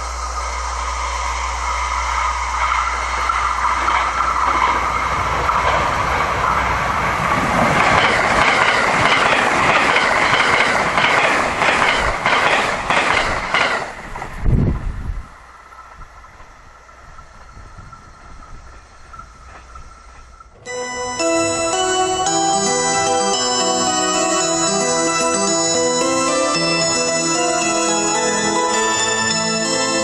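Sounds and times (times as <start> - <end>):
electric train passing at speed: 0.0 - 30.0
wheels clacking over rail joints: 2.0 - 14.9, 15.6 - 20.7.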